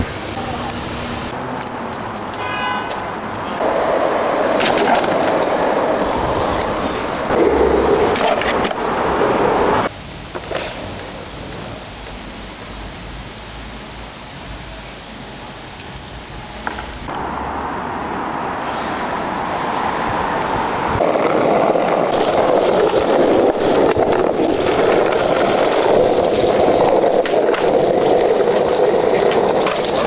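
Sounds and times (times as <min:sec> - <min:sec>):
skateboard wheels rolling on asphalt: 0:00.0 - 0:30.0
street background: 0:00.0 - 0:30.0
skateboard clacks: 0:01.6 - 0:12.2, 0:21.0 - 0:30.0.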